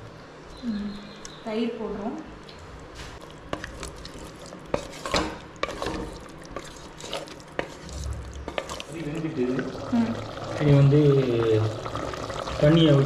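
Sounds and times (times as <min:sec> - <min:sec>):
wooden spatula scraping metal pot: 0:03.5 - 0:09.7.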